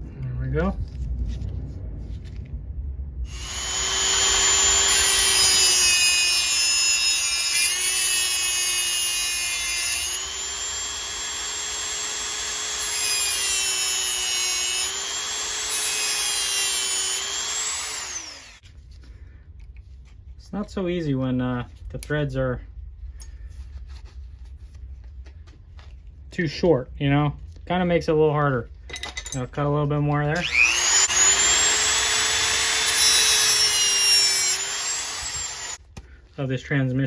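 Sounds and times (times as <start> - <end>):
rotary tool cutting metal: 3.3 - 18.6, 30.3 - 35.8.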